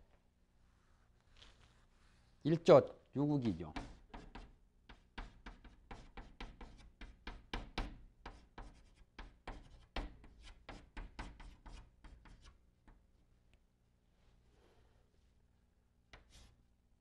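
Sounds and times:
chalk tapping and scraping on blackboard: 3.4 - 13.0, 16.1 - 16.6.

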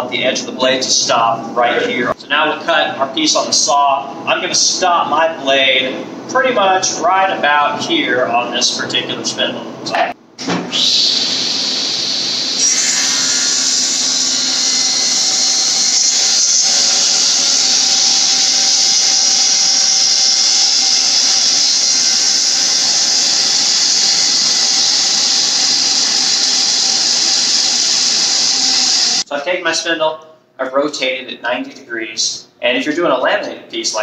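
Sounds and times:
table saw whining: 10.7 - 29.3
saw blade cutting wood: 11.0 - 29.3.

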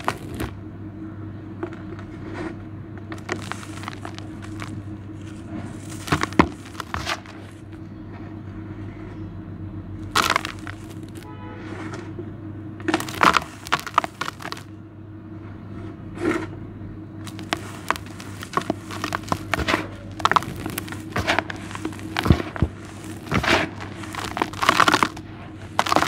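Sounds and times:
gritty powder and stones sifted: 0.0 - 0.6, 1.7 - 9.2, 10.0 - 12.0, 12.8 - 14.7, 17.2 - 26.0.

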